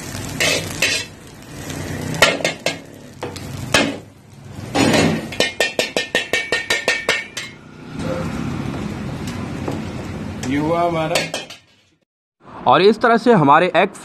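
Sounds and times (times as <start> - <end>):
ladle scraping and clinking in wok: 0.3 - 1.2, 11.1 - 12.0.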